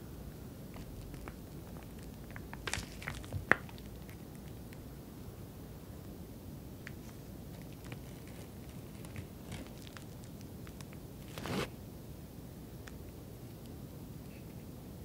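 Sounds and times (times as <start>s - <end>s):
batter piping clicks and squishes: 0.7s - 4.8s, 6.8s - 11.0s.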